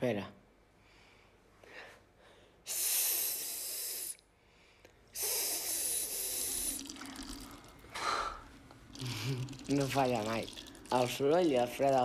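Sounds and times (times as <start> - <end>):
person hissing psss: 2.7 - 4.2, 5.1 - 7.2.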